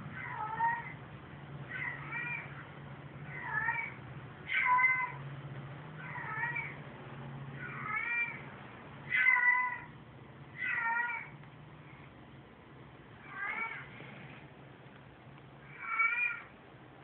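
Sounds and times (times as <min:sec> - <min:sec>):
cat meowing over tv speaker: 0:01.7 - 0:02.6, 0:03.3 - 0:05.2, 0:09.1 - 0:09.9, 0:10.6 - 0:11.3, 0:13.2 - 0:13.9, 0:15.6 - 0:16.5.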